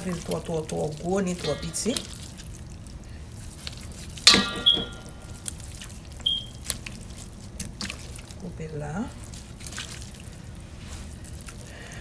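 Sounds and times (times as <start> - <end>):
water moving: 0.0 - 12.0
short high dings: 4.3 - 5.2
metallic clang on steel bowl: 4.3 - 5.5.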